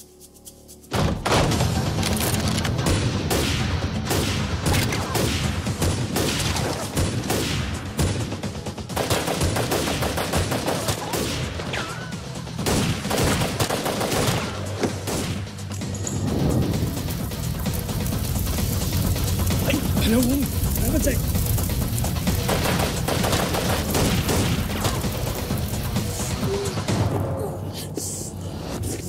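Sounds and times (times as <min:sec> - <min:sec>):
guns firing in volleys: 0:01.0 - 0:15.8, 0:18.3 - 0:26.3.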